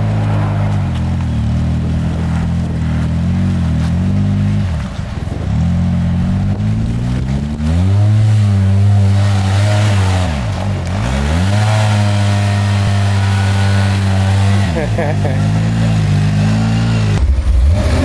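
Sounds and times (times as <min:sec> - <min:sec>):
tyres churning through mud: 0:00.0 - 0:18.0
engine revving hard: 0:05.6 - 0:18.0.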